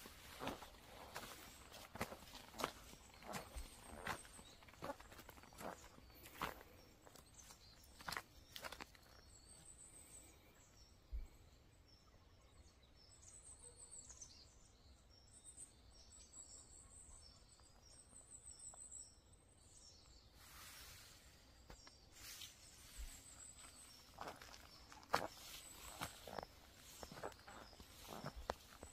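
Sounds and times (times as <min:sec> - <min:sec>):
small birds chirping: 0:00.0 - 0:28.9
dry leaves rustling: 0:22.2 - 0:28.9.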